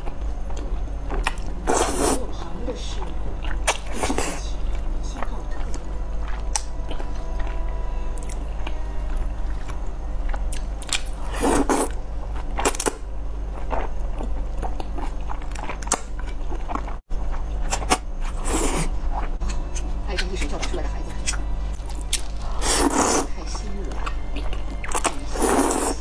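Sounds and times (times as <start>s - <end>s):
low steady hum: 0.0s - 26.0s
slurping noodles: 1.7s - 2.2s, 11.2s - 12.0s, 17.8s - 19.2s, 22.4s - 23.3s, 25.0s - 26.0s
wet chewing: 2.9s - 26.0s.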